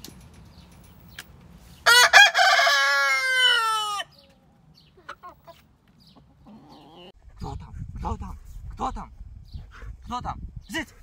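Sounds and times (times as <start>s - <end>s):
rooster crowing: 1.8s - 4.2s
hens clucking: 3.1s - 7.2s.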